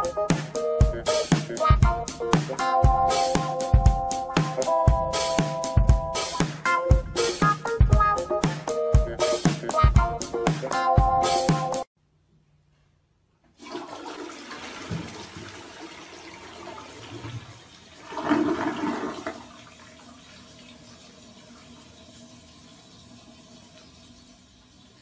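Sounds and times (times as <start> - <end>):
toilet flushing: 13.5 - 25.0.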